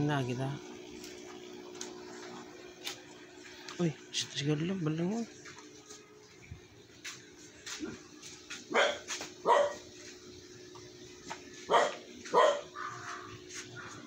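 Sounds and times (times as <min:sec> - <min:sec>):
dog barking: 0:08.7 - 0:09.8, 0:11.7 - 0:14.0.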